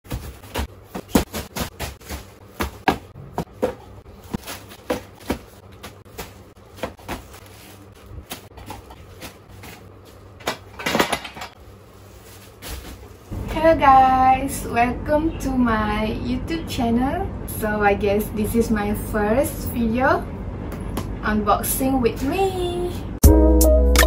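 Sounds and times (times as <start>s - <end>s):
parcels thudding onto a pile: 0.1s - 9.8s, 12.4s - 13.1s.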